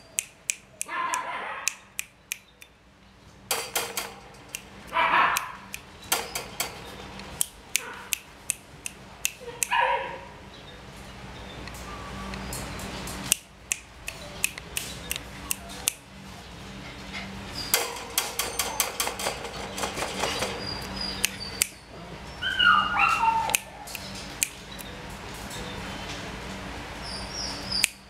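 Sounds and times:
puppy whining: 20.4 - 24.1.

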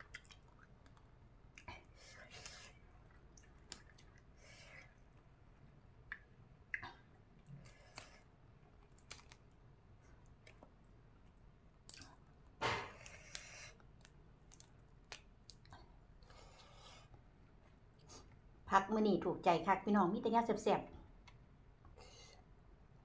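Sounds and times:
chewing crunch: 0.0 - 5.3, 6.0 - 16.3
raw vegetables snapping: 8.9 - 9.5.

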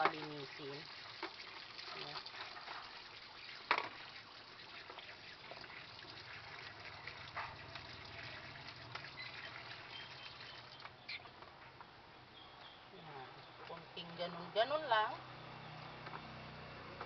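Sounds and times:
tap water running into sink: 0.0 - 11.0.

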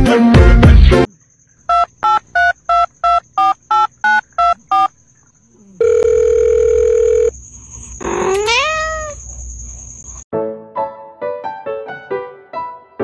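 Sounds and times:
cat meowing: 8.0 - 9.2.

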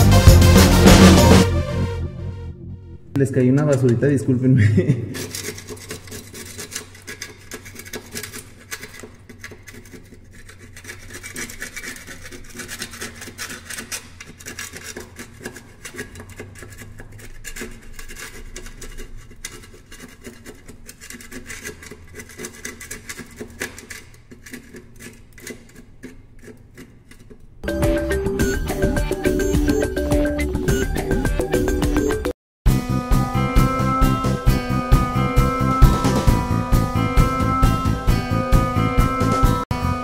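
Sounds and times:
putty knife scraping paint off wall: 5.1 - 27.4.

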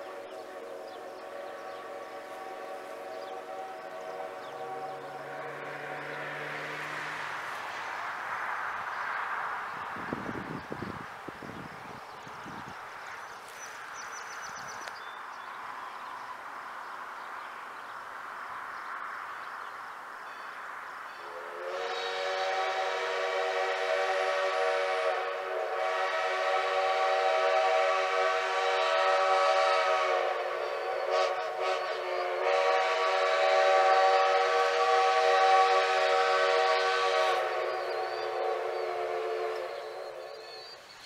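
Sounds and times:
steam locomotive chime whistle: 21.2 - 40.8.

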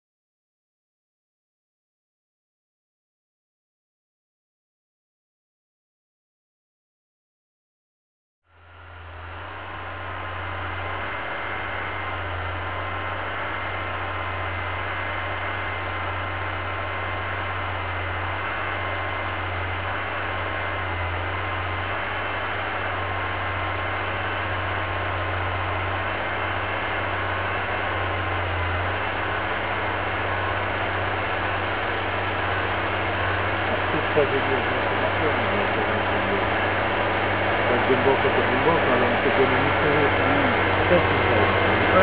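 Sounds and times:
tractor engine under load: 8.6 - 42.0.

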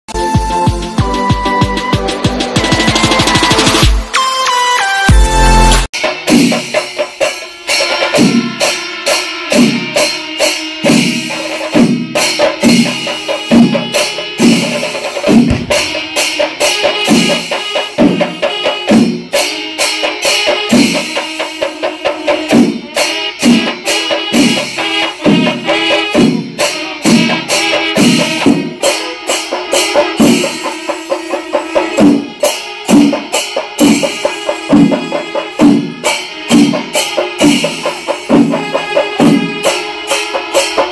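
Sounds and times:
drum strokes: 9.6 - 40.9.

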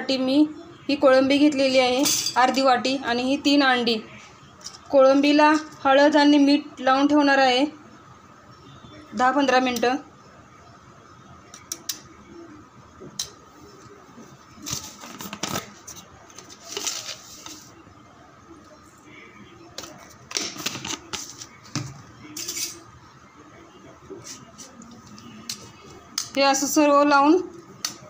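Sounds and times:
rustling scrapes: 14.6 - 17.7.

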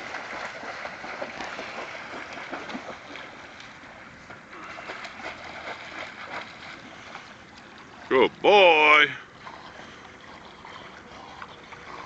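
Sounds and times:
dog splashing in water: 0.0 - 3.6, 4.6 - 7.2.

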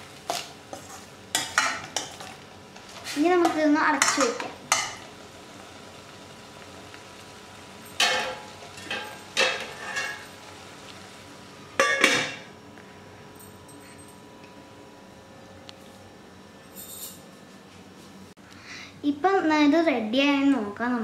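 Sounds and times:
metal lid clanking on pan: 8.0 - 10.2, 11.8 - 12.5.

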